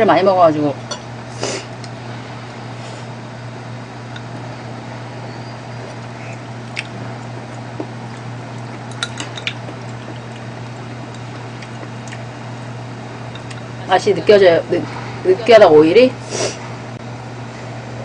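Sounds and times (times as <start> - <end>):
steady low hum: 0.0 - 18.0
wet broth sounds: 5.4 - 13.8.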